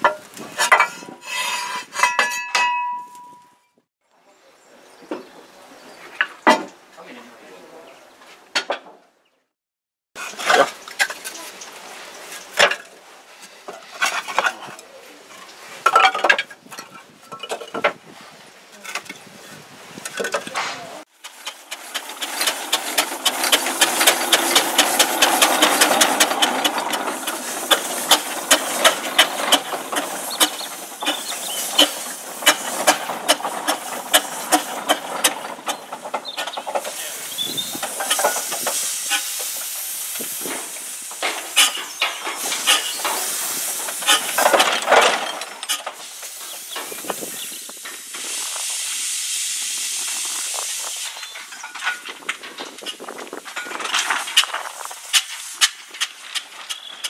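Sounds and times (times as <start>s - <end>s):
steam hissing: 20.8s - 56.7s
steam engine exhaust chuffs: 21.1s - 57.0s.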